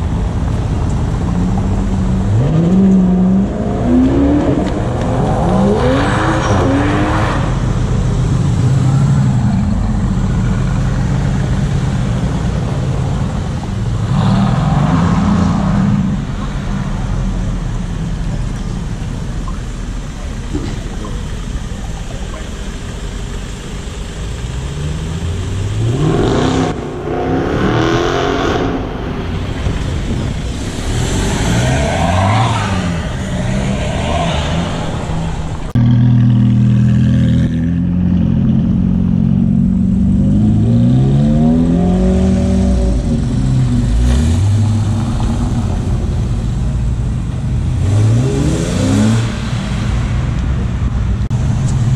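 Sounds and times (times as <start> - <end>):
car engines revving: 0.0 - 51.9
loud engine revving: 2.2 - 16.3, 24.5 - 46.0, 47.6 - 50.3.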